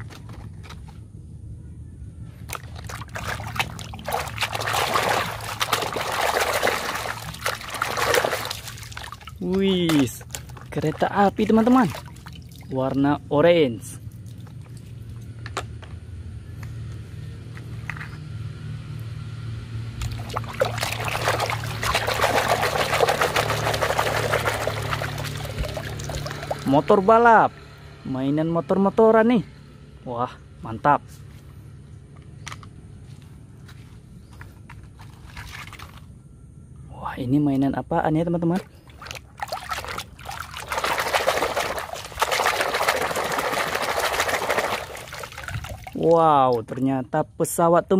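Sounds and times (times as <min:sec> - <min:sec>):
water splashing in a tub: 0:02.4 - 0:13.2, 0:20.0 - 0:27.7, 0:35.0 - 0:36.1, 0:38.5 - 0:46.8
water dripping: 0:02.5 - 0:13.0, 0:20.0 - 0:26.8, 0:38.8 - 0:46.8.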